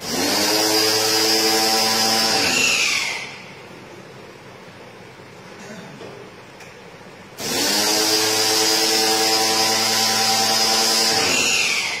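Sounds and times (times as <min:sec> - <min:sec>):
pressure washer motor hum: 0:00.0 - 0:03.4, 0:07.4 - 0:12.0.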